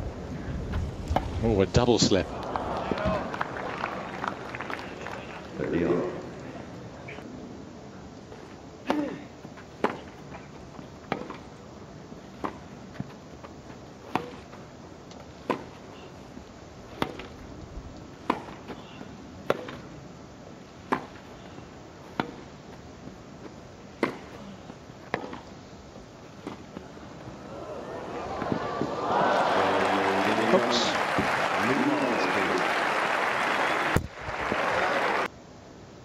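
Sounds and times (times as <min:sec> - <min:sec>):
steady background hiss: 0:00.0 - 0:36.0
tennis ball struck by rackets: 0:14.1 - 0:14.6, 0:15.4 - 0:15.8, 0:17.0 - 0:17.4, 0:18.2 - 0:18.7, 0:19.4 - 0:19.9, 0:20.8 - 0:21.2, 0:22.1 - 0:22.5, 0:23.9 - 0:24.4, 0:25.1 - 0:25.4.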